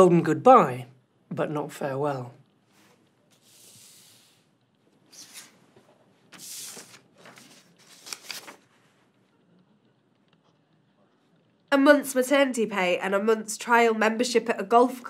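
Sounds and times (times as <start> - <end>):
paper sliding across table: 2.7 - 4.5, 5.1 - 9.0
paper rustling: 2.7 - 9.2.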